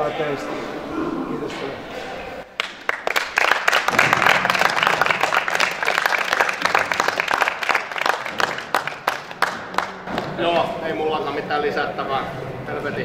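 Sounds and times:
people clapping: 0:02.5 - 0:10.7.

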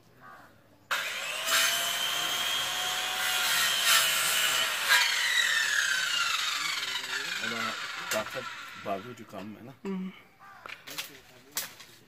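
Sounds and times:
electric saw cutting branch: 0:00.9 - 0:09.5.

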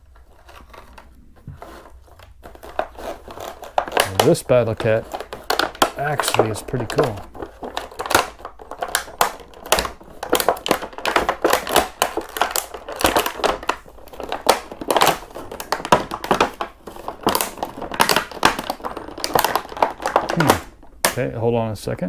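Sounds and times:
plastic packaging crinkling: 0:00.0 - 0:21.4.

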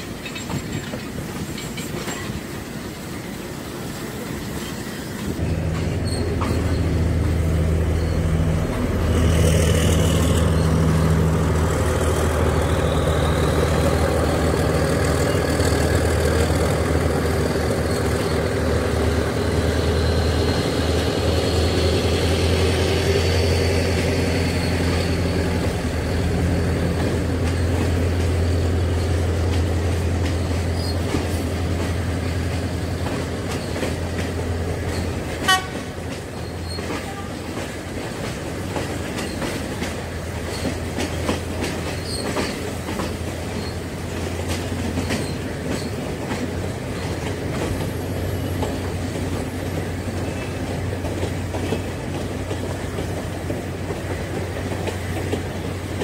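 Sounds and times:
train wheels clicking over rails: 0:00.0 - 0:56.0
train horn toot: 0:35.4 - 0:36.0, 0:36.9 - 0:37.5.

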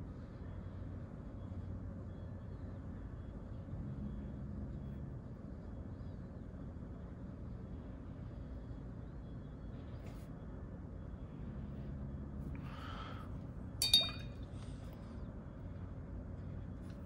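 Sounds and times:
low room hum: 0:00.0 - 0:17.0
brush clinking on container: 0:13.8 - 0:14.4.

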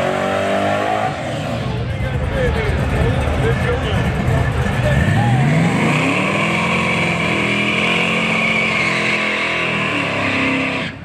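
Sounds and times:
engine at high revs: 0:00.0 - 0:11.0
tyres squealing on pavement: 0:04.8 - 0:11.0.

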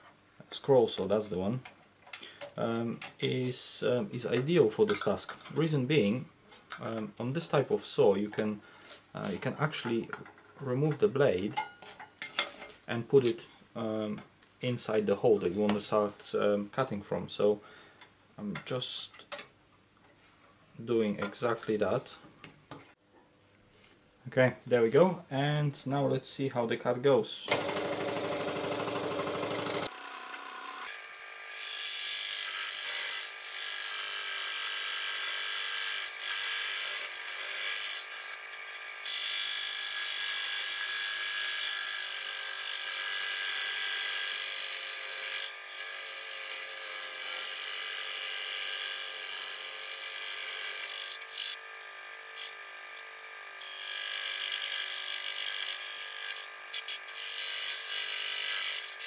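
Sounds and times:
scroll saw cutting plastic: 0:27.5 - 0:59.0.

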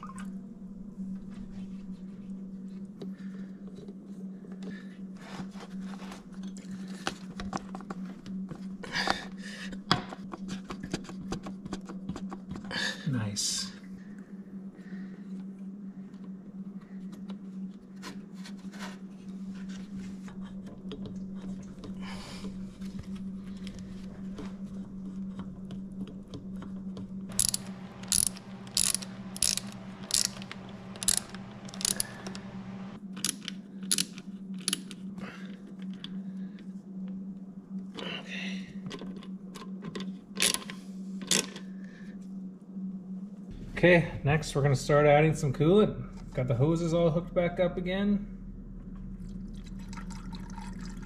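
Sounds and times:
steady low hum: 0:00.0 - 0:51.0
socket ratchet clicking: 0:27.3 - 0:32.5, 0:33.2 - 0:35.0.

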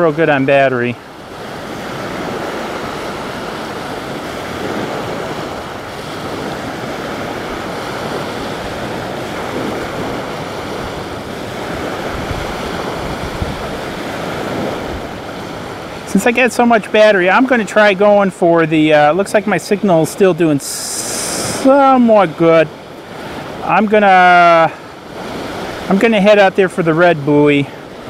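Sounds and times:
waves washing onto beach: 0:00.0 - 0:28.0
wind on microphone: 0:00.9 - 0:16.2, 0:20.8 - 0:21.9.

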